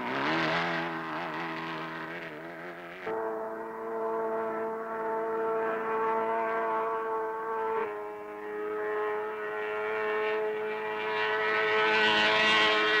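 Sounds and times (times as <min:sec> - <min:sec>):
outboard motor running: 0:00.0 - 0:04.4, 0:09.0 - 0:13.0.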